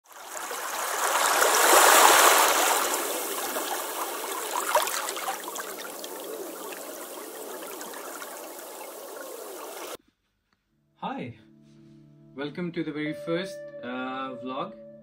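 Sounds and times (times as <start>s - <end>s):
water running and trickling: 0.0s - 10.0s.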